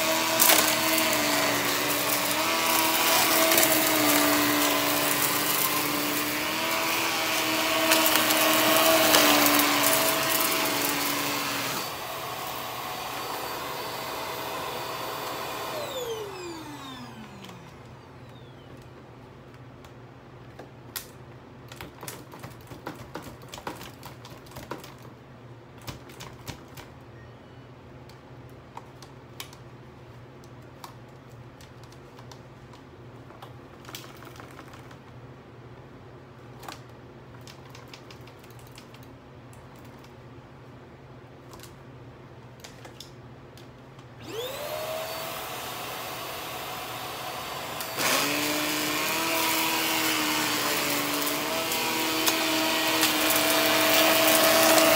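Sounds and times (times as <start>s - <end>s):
vacuum cleaner motor running: 0.0s - 18.5s, 44.2s - 54.9s.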